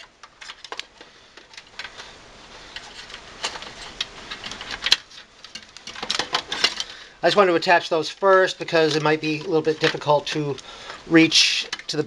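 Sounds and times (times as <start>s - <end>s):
cables clicking against metal cage: 2.7s - 12.0s.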